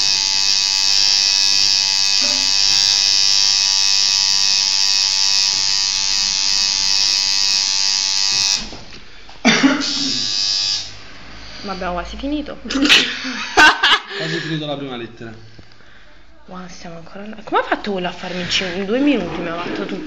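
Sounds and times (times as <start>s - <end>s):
tattoo machine buzzing: 0.0s - 9.0s, 9.8s - 11.8s.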